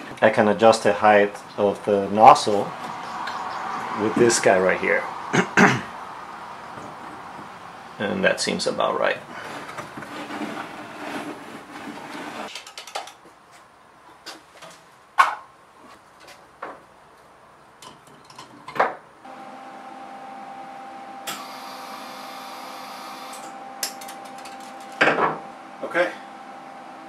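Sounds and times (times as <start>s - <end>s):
metal frame clicks and knocks: 12.5s - 13.2s.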